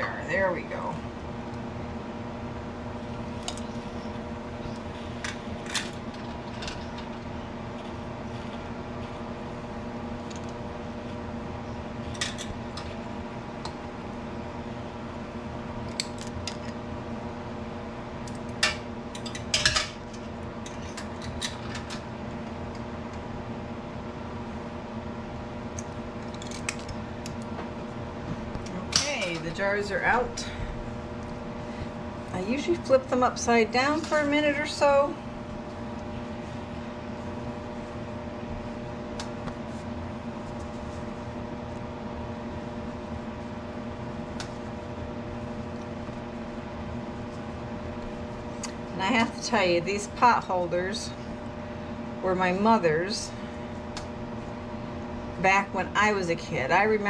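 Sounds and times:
steady hum: 0.0 - 57.0.

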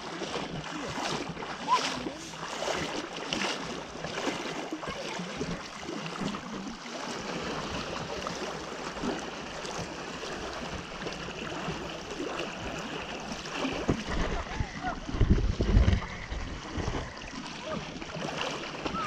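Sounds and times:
swimmers' strokes splashing: 0.0 - 19.0
water splashing from swimming: 0.0 - 19.0.

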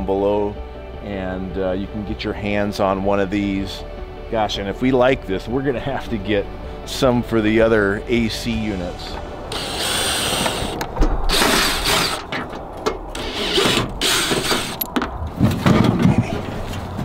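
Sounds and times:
cordless drill whirring: 9.5 - 12.2, 13.2 - 14.8.

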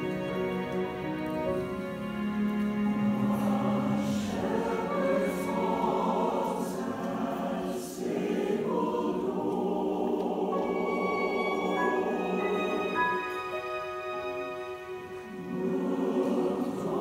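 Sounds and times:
violin playing: 0.0 - 6.9, 10.5 - 17.0
choir singing: 0.0 - 17.0.

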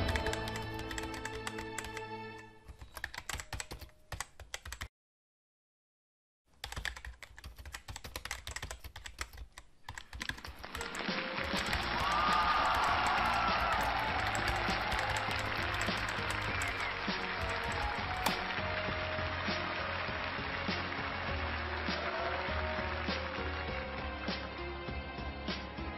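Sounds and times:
music: 0.0 - 3.6, 10.5 - 25.9
keyboard typing clicks: 0.0 - 4.9, 6.6 - 18.6.

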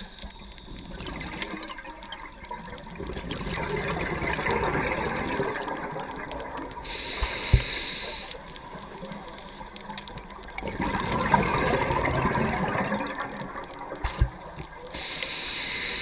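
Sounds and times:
regulator hissing inhalation: 6.8 - 8.4, 15.0 - 16.0.

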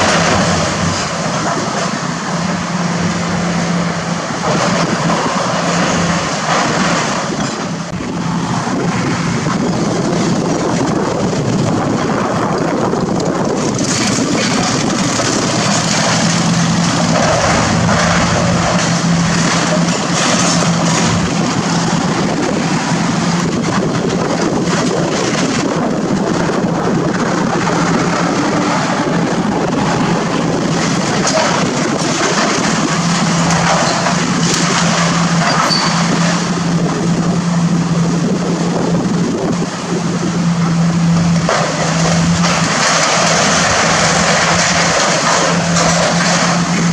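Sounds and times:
excavator diesel engine: 0.0 - 46.9
sheet metal and debris crunching: 13.3 - 37.2, 41.3 - 46.9.

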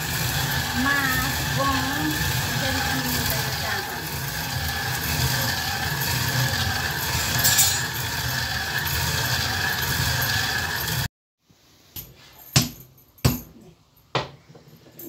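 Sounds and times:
stone hand mill grinding: 0.0 - 11.1.

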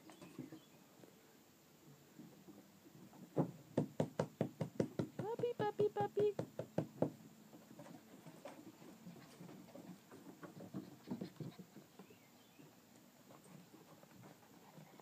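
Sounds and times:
puppy paws pattering on wood: 7.6 - 12.7.

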